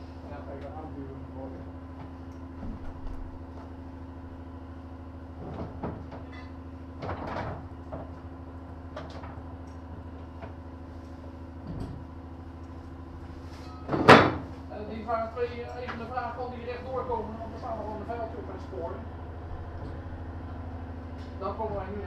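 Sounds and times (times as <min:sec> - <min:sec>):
tram hum: 0:17.1 - 0:22.0.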